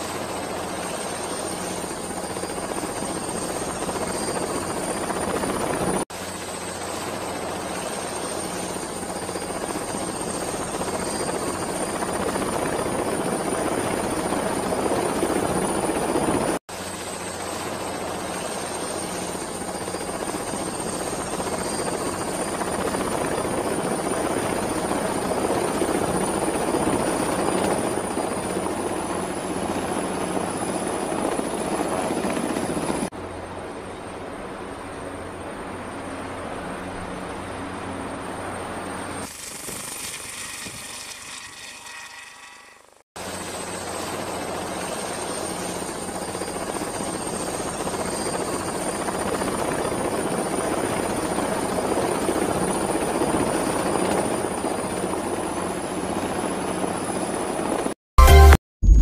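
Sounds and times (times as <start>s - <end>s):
helicopter rotor and engine: 0.0s - 58.0s
thin high whine: 39.0s - 43.0s.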